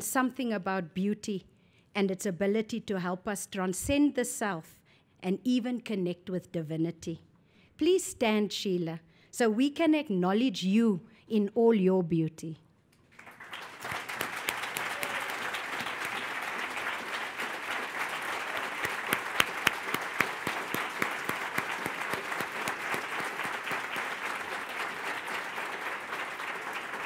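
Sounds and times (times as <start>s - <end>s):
audience applauding: 13.1s - 27.0s
single loud claps: 18.0s - 25.3s.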